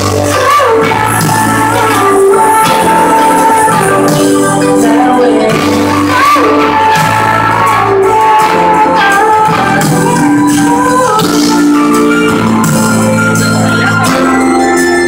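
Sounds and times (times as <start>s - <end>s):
drums playing steady beat: 0.0s - 15.0s
electric guitars: 0.0s - 15.0s
keyboard chords: 0.0s - 15.0s.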